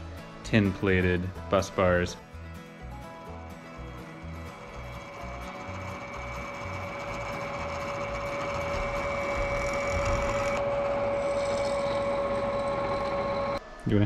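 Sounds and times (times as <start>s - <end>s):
drill press motor whine: 3.7s - 14.0s
drill bit boring into metal: 4.2s - 13.6s.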